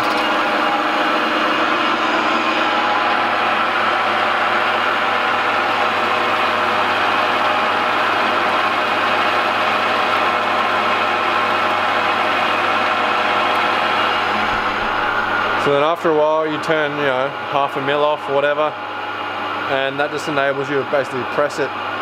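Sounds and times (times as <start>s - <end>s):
metal lathe cutting steel: 0.0s - 18.6s.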